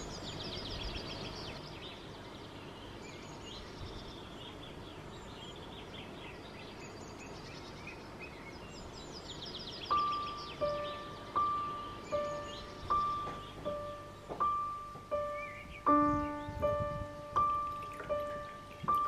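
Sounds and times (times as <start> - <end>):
outdoor background hiss: 0.0 - 19.0
songbirds chirping and trilling: 0.0 - 19.0.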